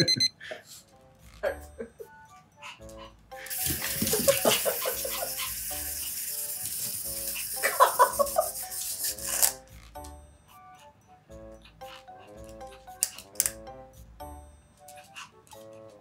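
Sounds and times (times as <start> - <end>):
light background music: 0.0 - 16.0
toy car spring motor whirring: 3.5 - 9.9.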